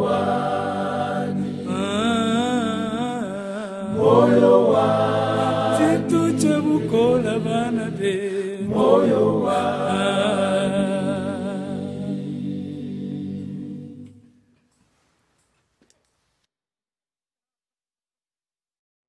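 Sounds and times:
choir singing a cappella: 0.0s - 14.5s.

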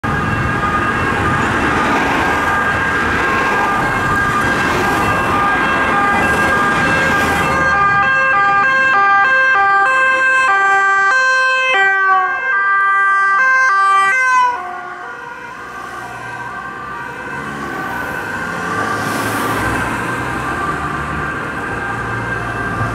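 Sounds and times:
road and engine noise: 0.0s - 22.9s
two-tone police sirens: 0.0s - 22.9s.

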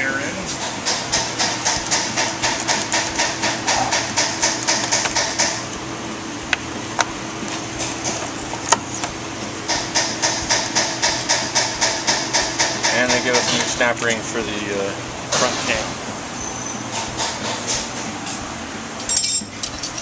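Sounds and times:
steady hum: 0.0s - 20.0s
rhythmic rasping: 6.5s - 16.2s.

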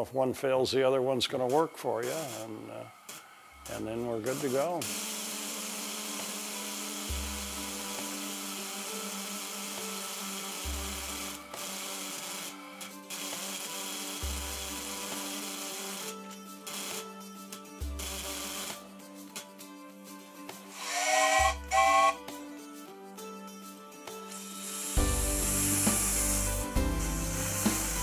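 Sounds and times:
background music with bass notes: 16.2s - 28.0s
steam safety valve hissing: 20.7s - 22.2s, 24.4s - 28.0s.

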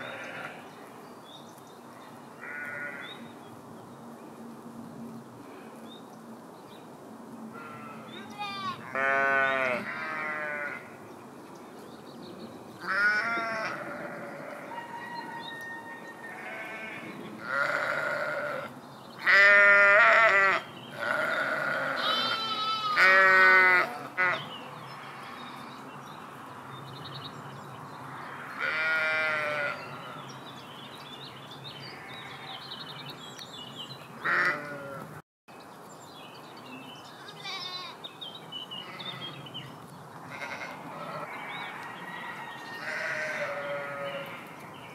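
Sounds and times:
sheep bleating: 0.0s - 0.6s, 2.4s - 3.1s, 7.6s - 10.8s, 12.8s - 14.7s, 16.3s - 24.4s, 28.6s - 29.8s, 34.2s - 35.1s, 37.2s - 38.0s, 40.3s - 41.3s, 42.8s - 44.4s.

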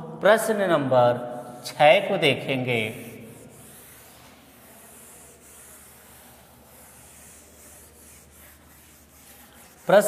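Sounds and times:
cloth rubbing chalkboard: 2.4s - 10.0s.

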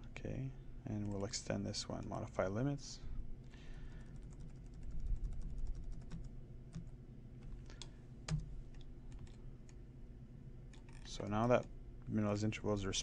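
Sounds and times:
keyboard and mouse clicks: 4.2s - 9.8s.

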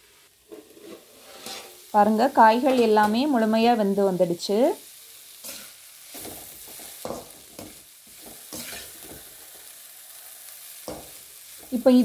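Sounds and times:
vegetables sizzling in oil: 0.0s - 12.0s
spatula scraping metal pan: 0.5s - 1.9s, 5.4s - 9.2s.

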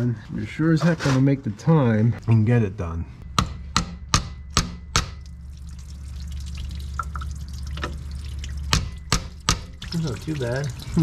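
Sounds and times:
steady low hum: 0.0s - 11.0s
coolant trickling and dripping: 4.9s - 11.0s.

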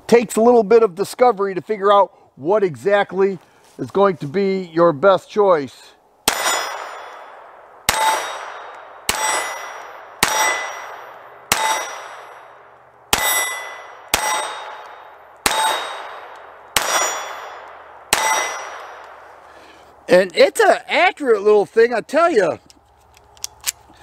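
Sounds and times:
pistol shots: 6.2s - 19.4s
steel plate target clanging: 6.3s - 12.6s, 13.2s - 19.0s.

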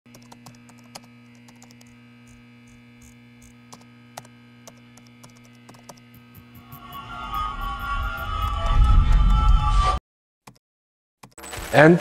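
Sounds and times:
low electrical hum: 0.1s - 6.6s.

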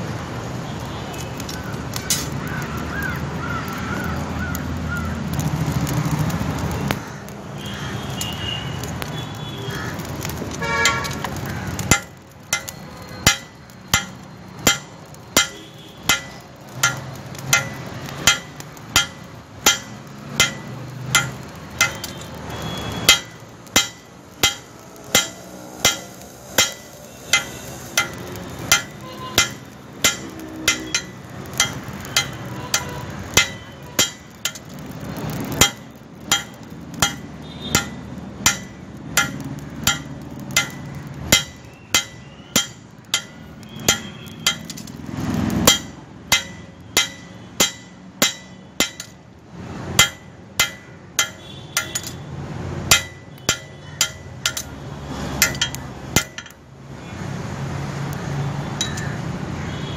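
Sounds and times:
hammer striking steel on anvil: 11.8s - 22.4s, 23.0s - 45.0s, 45.6s - 49.2s, 50.0s - 52.2s, 52.9s - 56.6s, 58.8s - 59.2s.

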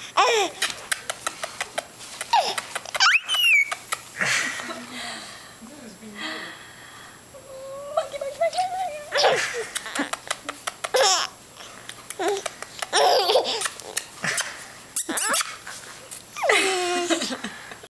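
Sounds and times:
baby laughing: 0.2s - 4.0s, 9.1s - 11.4s, 12.1s - 14.4s, 15.0s - 17.3s.

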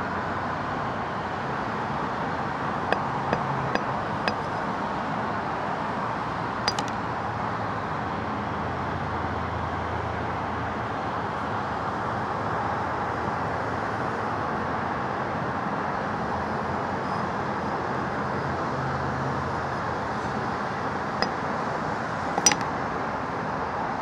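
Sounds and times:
hammer head clinking on floor: 6.7s - 6.9s, 22.4s - 22.6s.

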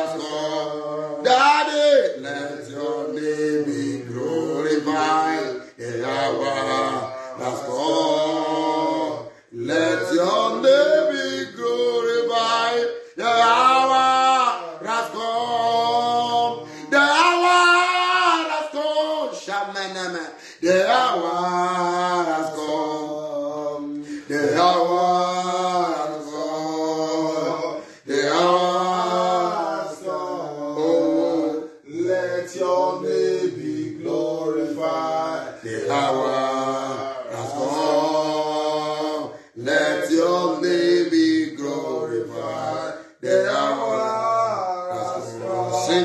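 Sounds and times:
man singing unaccompanied: 0.0s - 46.0s.

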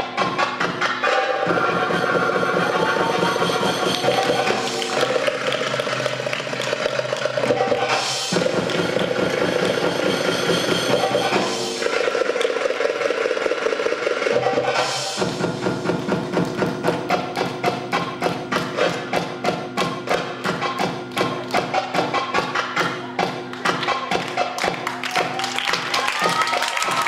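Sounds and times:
belly dance music melody: 0.1s - 12.4s
steady drum beat: 1.5s - 12.3s, 13.6s - 27.0s.

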